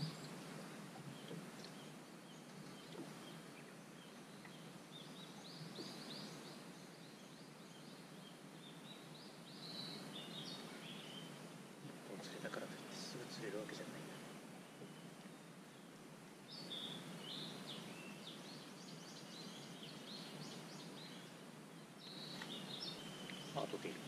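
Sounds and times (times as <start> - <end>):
faint outdoor ambience: 0.0 - 24.0
bird chirping: 16.5 - 24.0.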